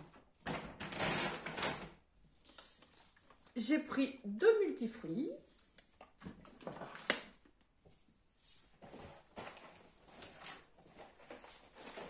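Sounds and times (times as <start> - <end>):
packaging rustling: 5.6 - 7.4, 8.8 - 12.0.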